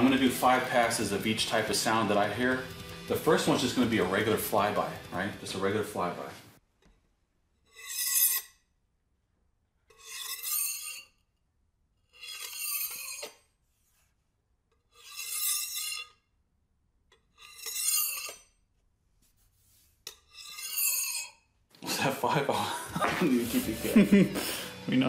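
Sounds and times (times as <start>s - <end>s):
knife scraping across countertop: 7.6s - 8.6s, 9.9s - 11.2s, 12.1s - 14.0s, 14.9s - 16.2s, 17.4s - 18.5s, 19.4s - 21.4s.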